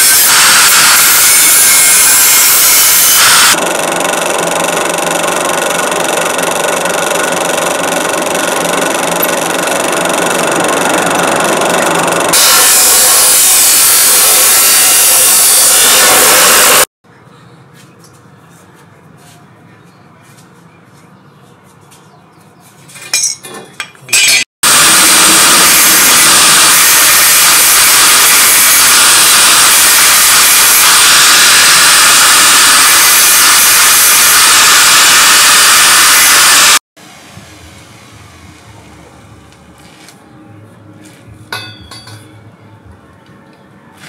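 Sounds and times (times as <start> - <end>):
angle grinder cutting steel: 0.0 - 16.9, 24.1 - 36.8.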